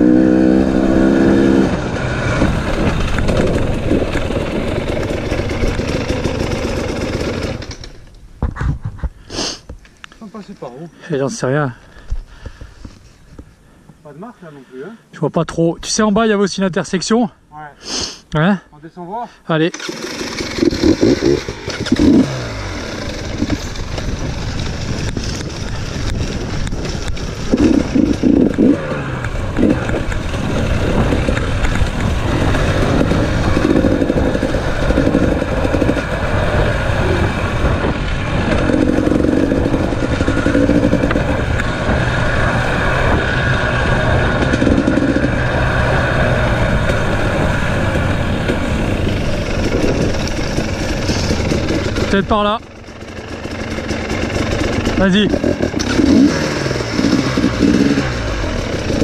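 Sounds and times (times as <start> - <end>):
dirt bike engines revving: 0.0 - 8.0, 19.5 - 59.0.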